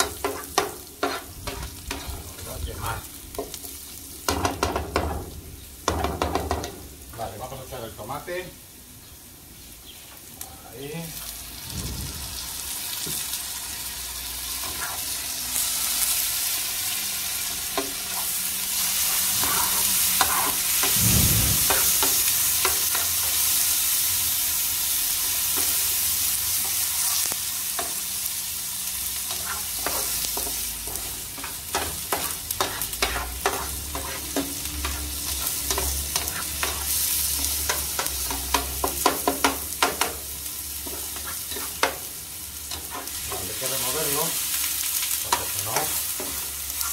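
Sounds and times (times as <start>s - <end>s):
vegetables sizzling in a pan: 0.0s - 46.9s.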